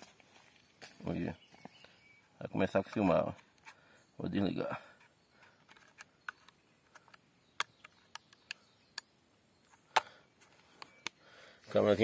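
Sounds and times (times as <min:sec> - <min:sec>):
plastic clicks and ticks: 0:05.4 - 0:09.1.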